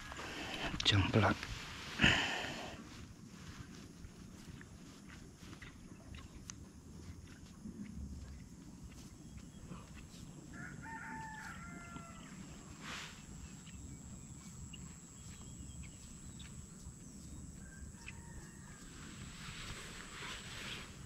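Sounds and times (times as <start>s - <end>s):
rooster crowing: 10.5s - 12.8s, 17.6s - 19.3s.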